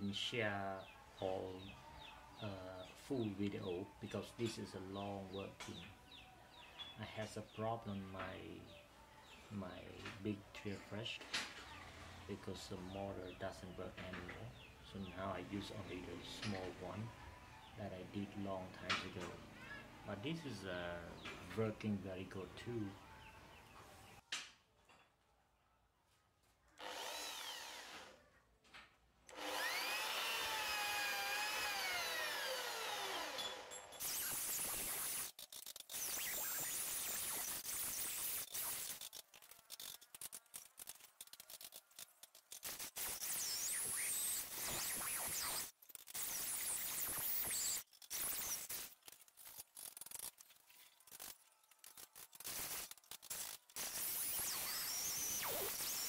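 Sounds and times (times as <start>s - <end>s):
drill press drilling steel: 29.3s - 39.0s, 42.6s - 49.0s, 52.5s - 56.0s.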